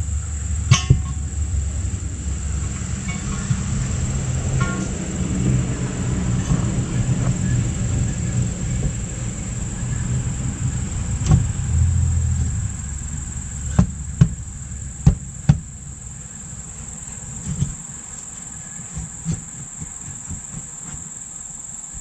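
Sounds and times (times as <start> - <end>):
low rumble: 0.0 - 18.8
steady high whine: 0.0 - 22.0
metal knocks and clunks: 0.7 - 1.3, 2.7 - 8.0, 11.1 - 21.0.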